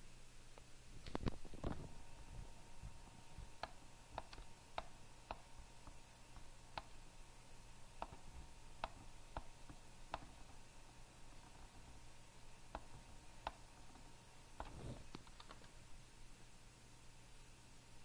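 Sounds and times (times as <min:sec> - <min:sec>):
faint steady hum: 0:00.0 - 0:18.0
computer mouse clicks: 0:03.6 - 0:07.0, 0:08.0 - 0:10.6, 0:12.7 - 0:15.8.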